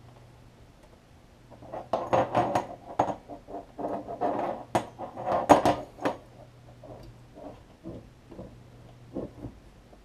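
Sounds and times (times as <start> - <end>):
faint low hum: 0.0 - 10.0.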